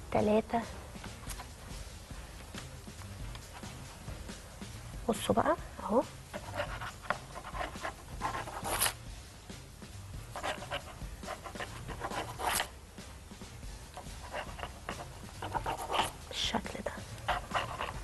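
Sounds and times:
knife scraping over baking paper: 11.5 - 12.7, 14.2 - 16.2.

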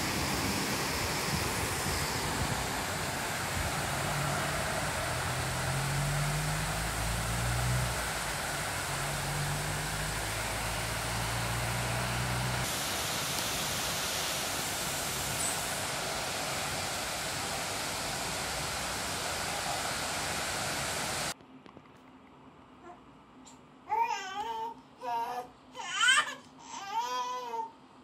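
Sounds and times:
heavy rain pouring: 0.0 - 21.4
low hum: 0.0 - 21.4.

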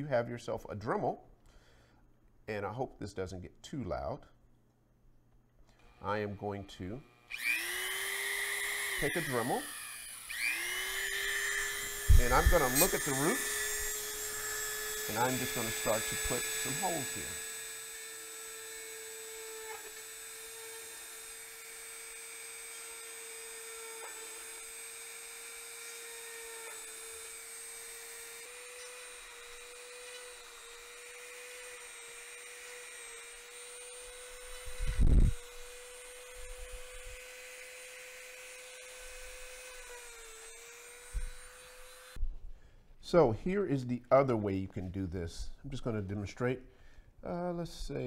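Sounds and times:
rotary tool whining: 5.7 - 42.2.

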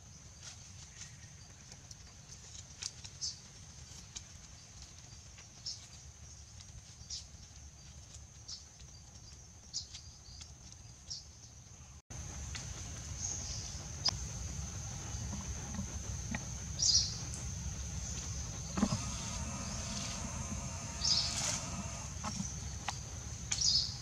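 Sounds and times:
low rumble: 12.1 - 24.0
high insect drone: 12.2 - 24.0.

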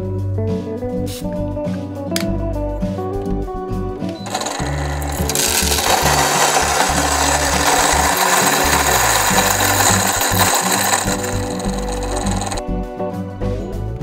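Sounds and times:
coffee grinder grinding beans: 4.2 - 12.6.

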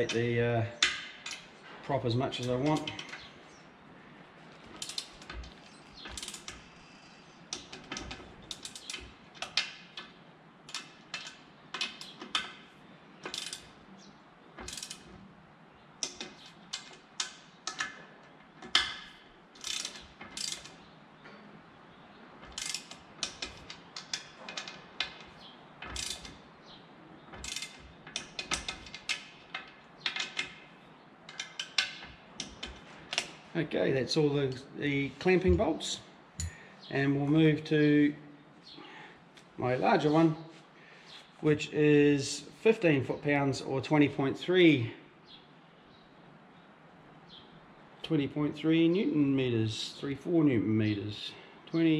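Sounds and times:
hand ratchet clicking: 4.8 - 10.1, 13.2 - 13.7, 14.6 - 15.1, 18.6 - 20.8, 22.4 - 26.4, 27.3 - 30.6.

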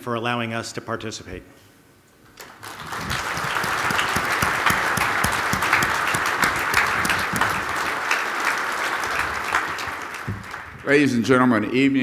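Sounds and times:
audience applauding: 2.4 - 11.2.

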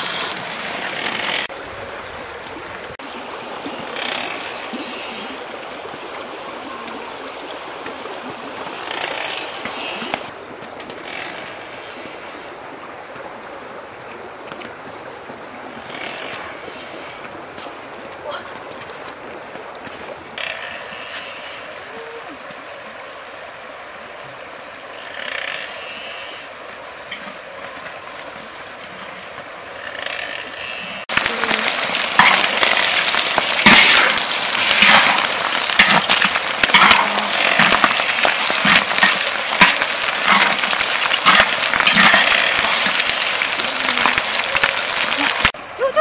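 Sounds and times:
river rushing: 0.0 - 15.8, 30.5 - 46.0
eggs sizzling in hot oil: 31.0 - 45.6
metal spatula scraping a pan: 32.2 - 43.1.

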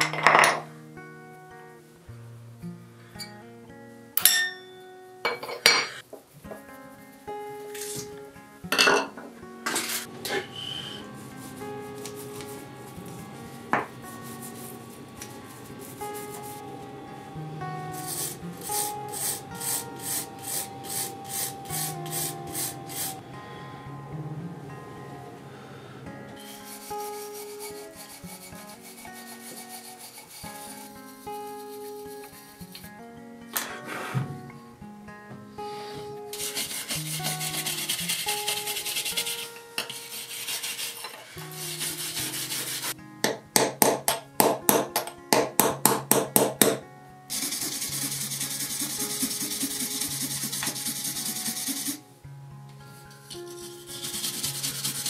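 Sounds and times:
soft background music: 0.0 - 55.0
abrasive rubbing on metal: 9.7 - 23.2, 26.4 - 32.6, 35.8 - 43.0, 47.3 - 52.0, 53.0 - 55.0
screw scrubbed on wire brush: 36.4 - 43.0, 47.3 - 52.0, 53.5 - 55.0.

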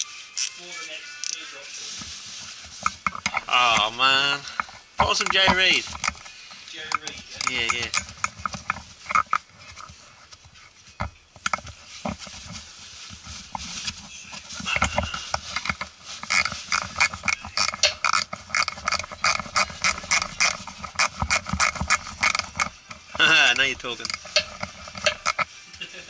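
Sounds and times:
ratchet spanner clicking: 16.2 - 22.7.

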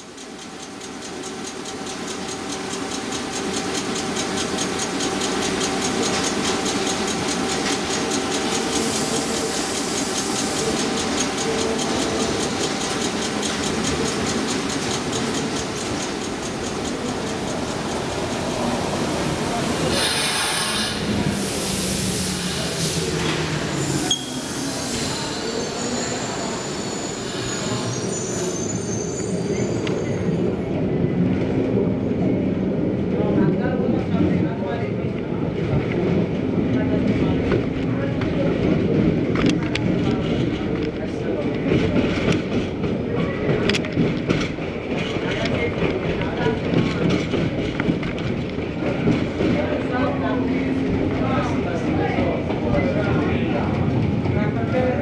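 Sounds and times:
train moving with falling tone: 0.0 - 30.4
electric train hum: 0.0 - 34.1
loud hiss: 8.5 - 11.0, 19.2 - 26.6.

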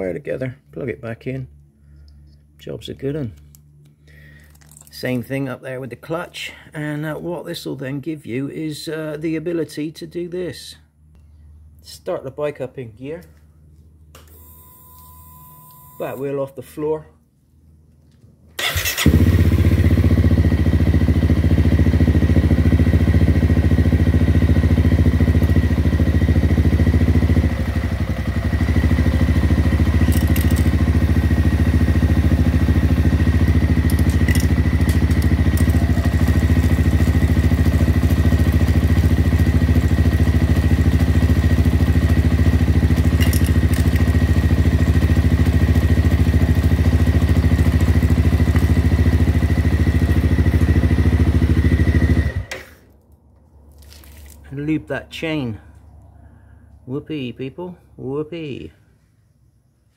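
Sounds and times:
motorcycle engine running: 18.6 - 52.5.

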